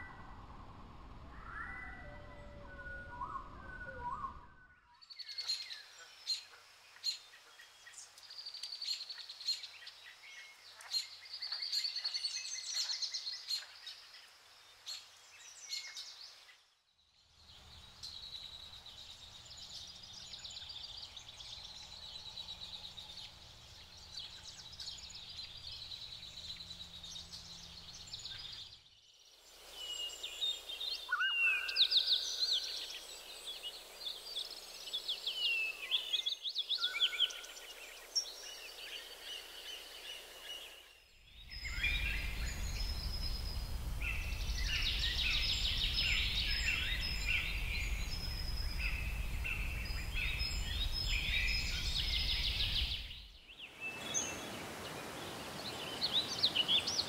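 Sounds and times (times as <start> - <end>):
wild birds singing and chirping: 0.0 - 57.0.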